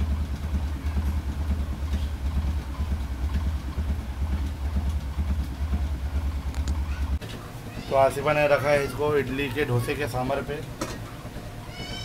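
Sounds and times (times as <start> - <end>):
low mechanical hum: 0.0 - 12.0
faint soft ticks: 6.5 - 6.8.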